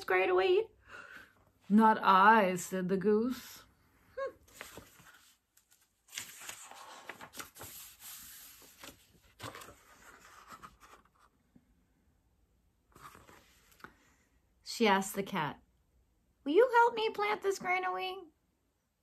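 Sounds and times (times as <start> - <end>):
paper pages rustling and turning: 4.4 - 11.4, 12.9 - 14.0.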